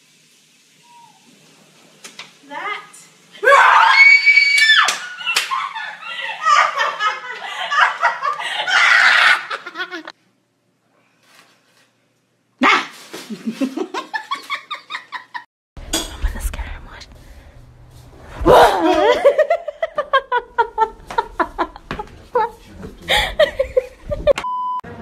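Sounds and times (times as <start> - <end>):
woman screaming: 3.4 - 5.4, 8.6 - 9.6, 18.4 - 19.2
woman laughing: 5.2 - 10.1, 13.3 - 15.5, 18.5 - 24.4
voices and laughter: 18.6 - 24.4.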